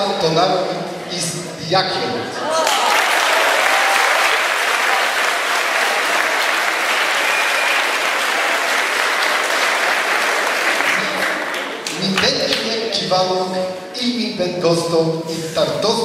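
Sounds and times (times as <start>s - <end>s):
audience applauding: 2.5s - 12.7s.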